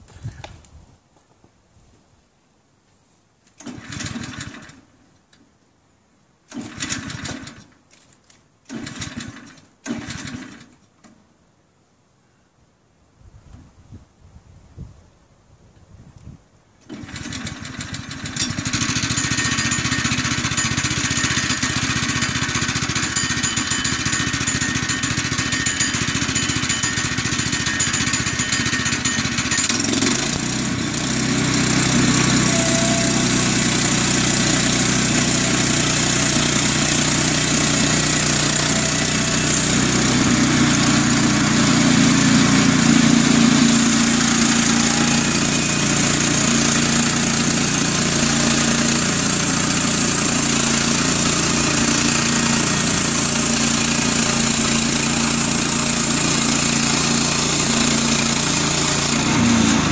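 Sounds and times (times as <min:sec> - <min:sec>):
band sawmill running: 0:16.9 - 0:59.9
blade cutting log: 0:16.9 - 0:59.9.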